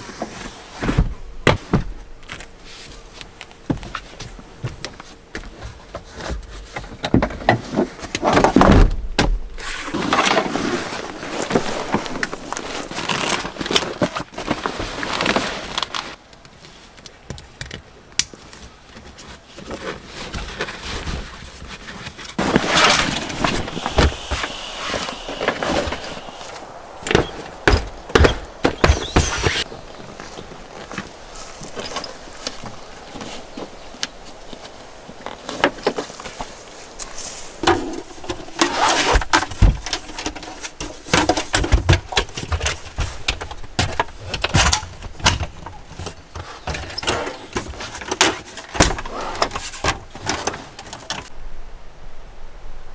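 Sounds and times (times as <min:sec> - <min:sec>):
fabric rustling and sliding: 0:09.6 - 0:16.2, 0:19.7 - 0:32.6.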